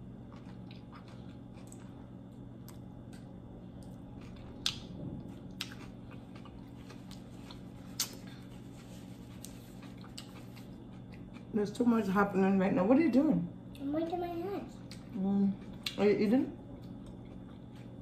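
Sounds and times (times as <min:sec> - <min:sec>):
steady low hum: 0:00.0 - 0:18.0
person chewing food: 0:00.1 - 0:11.5, 0:16.8 - 0:18.0.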